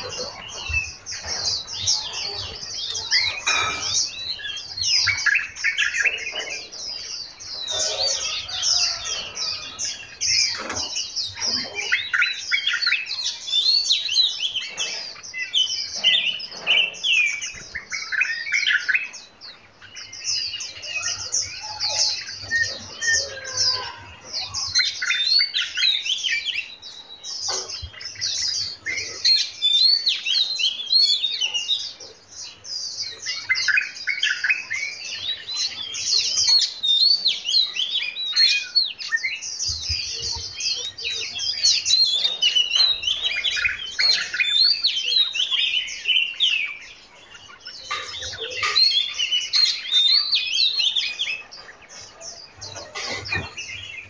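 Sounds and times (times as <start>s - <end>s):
songbirds singing and chirping: 0.0s - 54.0s.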